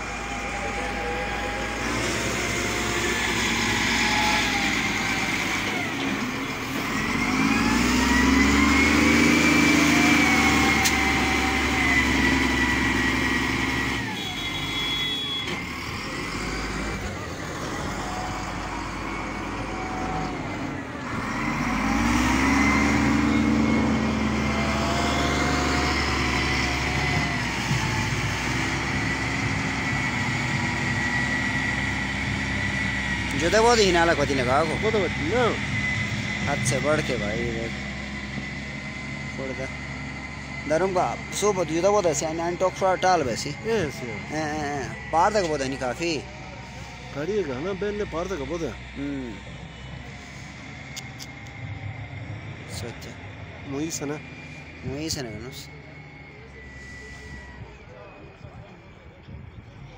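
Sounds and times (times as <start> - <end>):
diesel engine revving: 0.0 - 59.9
steady high whine: 29.5 - 59.9.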